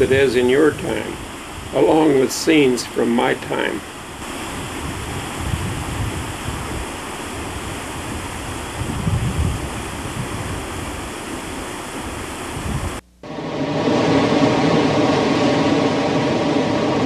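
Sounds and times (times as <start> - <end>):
low rumbles: 12.6 - 17.0.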